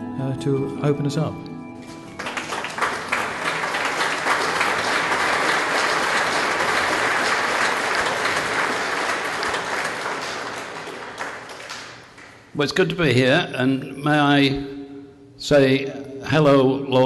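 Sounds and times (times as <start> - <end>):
crowd applauding: 1.8 - 12.6.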